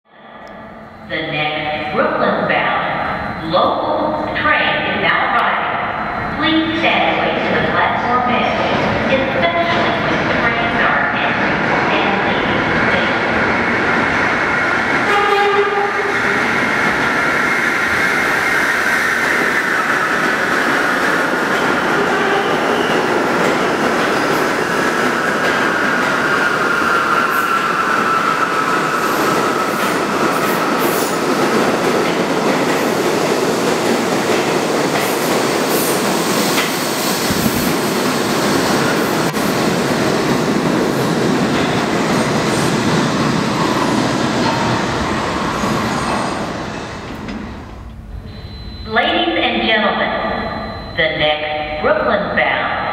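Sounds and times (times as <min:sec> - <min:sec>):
subway train electric whine: 0:00.1 - 0:52.9
train horn note: 0:15.1 - 0:16.1.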